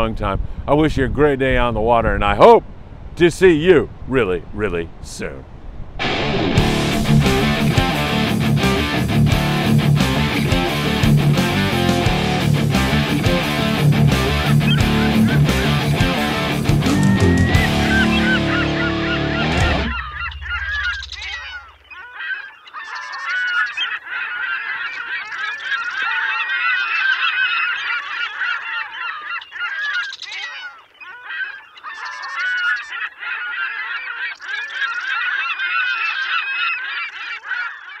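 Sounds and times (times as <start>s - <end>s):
flock of birds calling: 10.1s - 38.0s.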